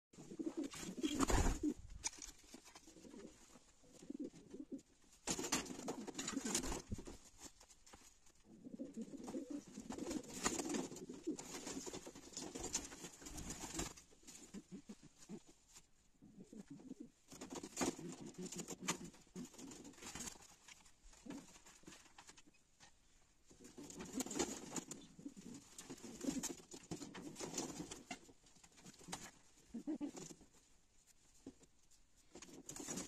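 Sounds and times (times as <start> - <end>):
pigeons cooing: 2.8 - 4.9, 8.5 - 11.6, 29.1 - 30.4.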